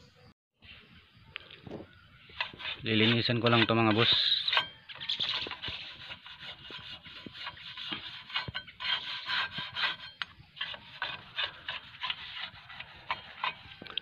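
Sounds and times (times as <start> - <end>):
brush bristles rasping on metal: 2.3 - 13.9.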